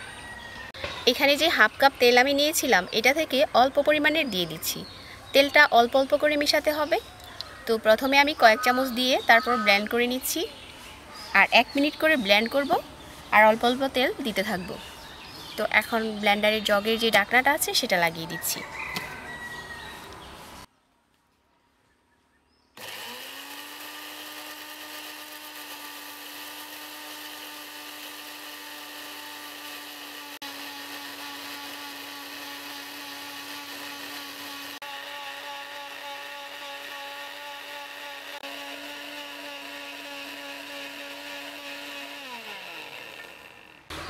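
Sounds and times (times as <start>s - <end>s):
blender motor whining: 22.8s - 44.0s.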